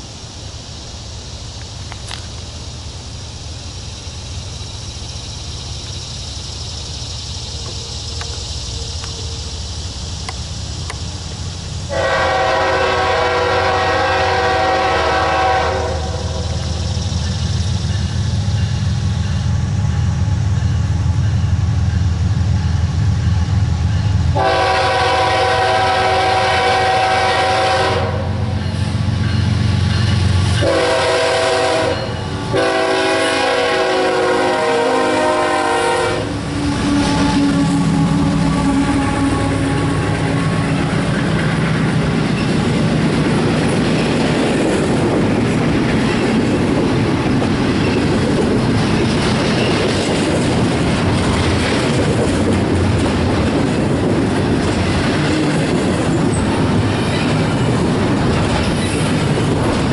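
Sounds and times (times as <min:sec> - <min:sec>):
train wheels clattering on rail: 0:00.0 - 0:59.9
locomotive air horn blasts: 0:11.9 - 0:16.5, 0:24.3 - 0:28.5, 0:30.6 - 0:41.0.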